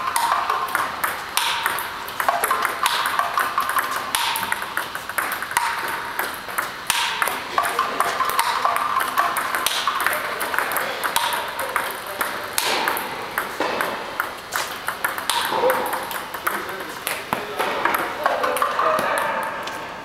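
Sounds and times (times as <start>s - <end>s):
paddle striking ball: 0.0s - 19.7s
table tennis balls clicking: 0.0s - 19.8s.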